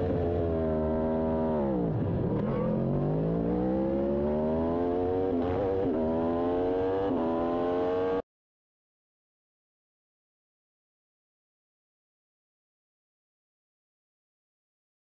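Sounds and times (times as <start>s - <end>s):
motorcycle engine revving: 0.0s - 8.2s.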